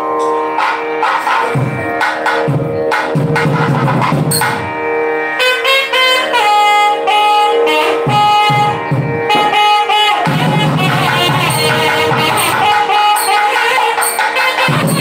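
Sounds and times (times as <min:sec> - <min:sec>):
drum strokes: 0:00.2 - 0:04.8, 0:07.7 - 0:15.0
double reed horn melody: 0:05.2 - 0:15.0.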